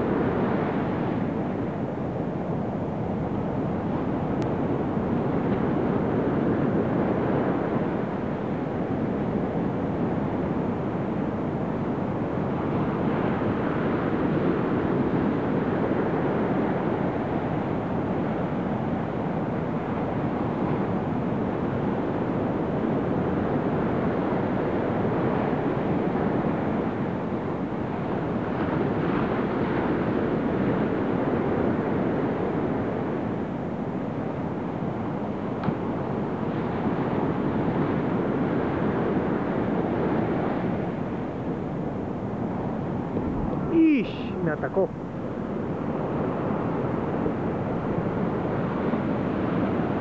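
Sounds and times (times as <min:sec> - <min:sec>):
wind: 0:00.0 - 0:50.0
surf rushing: 0:34.6 - 0:50.0.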